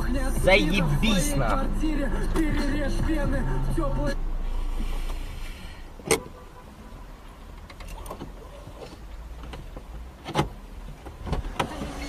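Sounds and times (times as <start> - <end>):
car cabin low rumble: 0.0 - 12.0.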